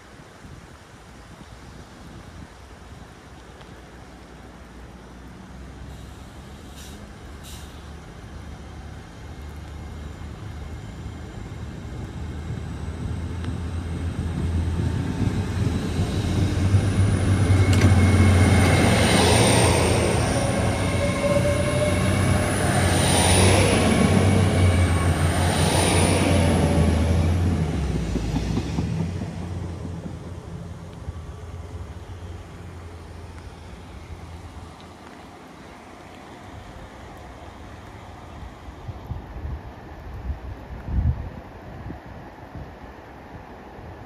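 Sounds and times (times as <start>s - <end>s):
train engine hum and rumble: 0.0s - 44.0s
high wavering squeal: 16.0s - 27.4s.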